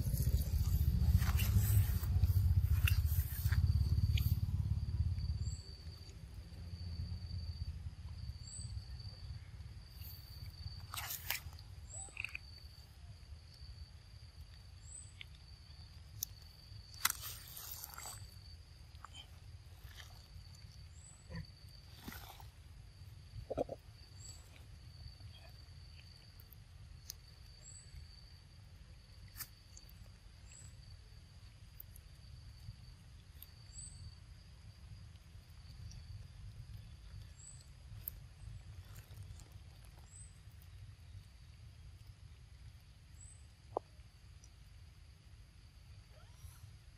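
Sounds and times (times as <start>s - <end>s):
low rumble: 0.0s - 10.7s
pulsing insect drone: 0.0s - 26.8s.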